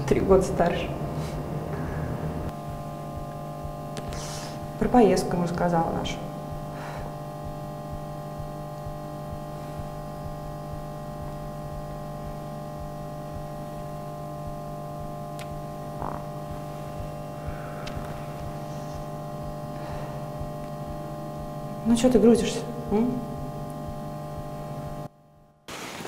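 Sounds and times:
steady hum of held tones: 0.0s - 25.7s.

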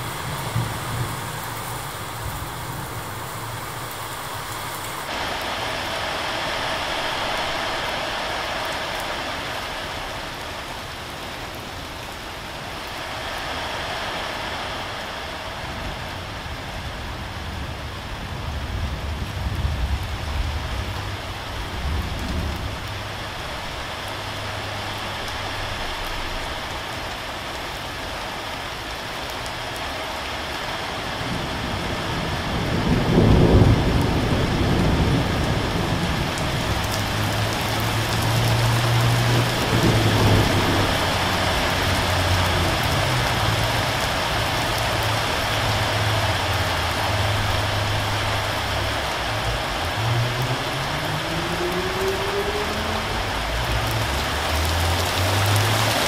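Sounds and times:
thunder rumbling: 0.0s - 5.4s, 15.6s - 25.5s, 31.2s - 54.3s
steady rain falling: 0.0s - 56.0s.

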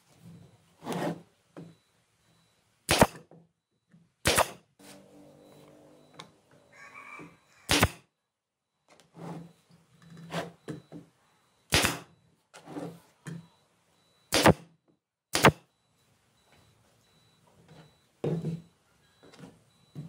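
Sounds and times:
nail gun shots: 2.9s - 3.3s, 4.2s - 4.7s, 7.7s - 8.0s, 11.7s - 12.1s, 14.3s - 14.7s, 15.3s - 15.7s.

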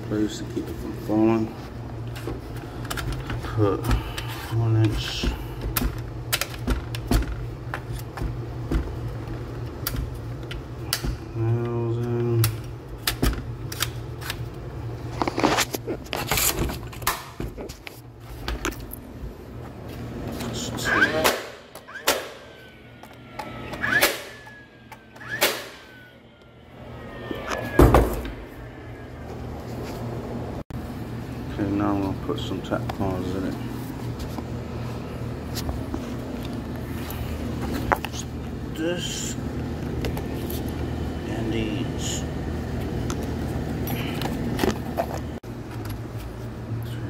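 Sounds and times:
thin whine: 19.6s - 30.6s.

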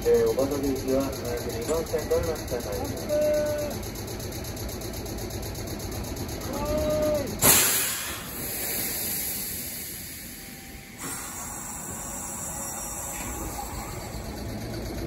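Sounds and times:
compressed air hissing: 7.4s - 13.9s.

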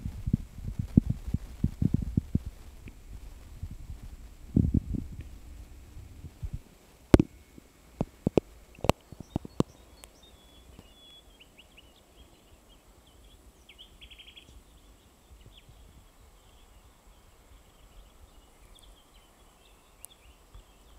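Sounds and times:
faint bird chirps: 1.0s - 20.9s
rapid bird trill: 7.1s - 20.9s.

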